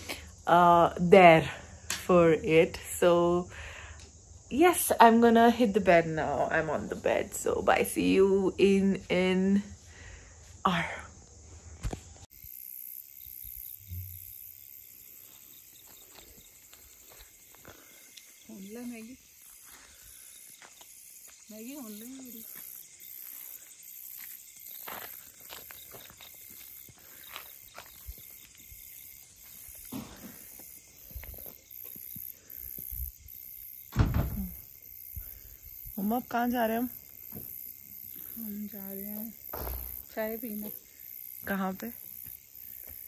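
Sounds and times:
crickets chirring: 0:00.0 - 0:43.0
footsteps on a path: 0:15.2 - 0:32.9, 0:39.4 - 0:40.8, 0:42.1 - 0:43.0
soft low thump: 0:39.6 - 0:40.0.

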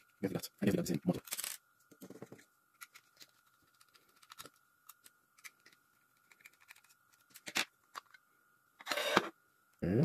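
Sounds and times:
small parts clicking and tapping: 0:01.2 - 0:08.2.

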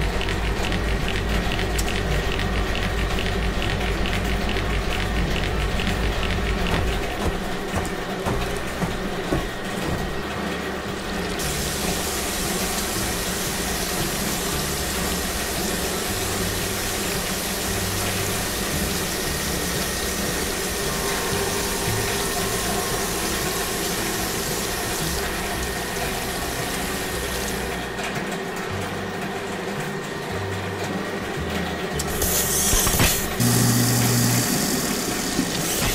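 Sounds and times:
low machine hum: 0:00.0 - 0:35.9
water spraying hiss: 0:11.4 - 0:27.7.

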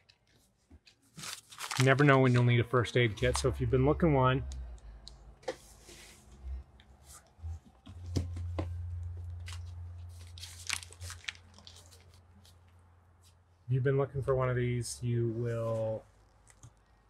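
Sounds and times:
items rustling in cardboard box: 0:01.0 - 0:02.5, 0:09.4 - 0:12.6
low hum: 0:02.5 - 0:13.4.

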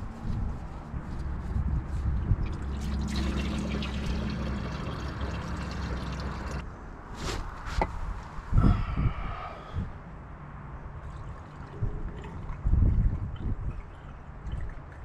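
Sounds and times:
oil trickling into plastic cup: 0:02.5 - 0:06.6.

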